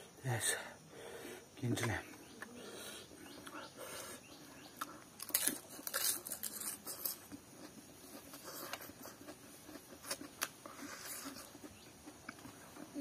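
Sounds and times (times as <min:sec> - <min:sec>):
person chewing food: 0:03.2 - 0:13.0.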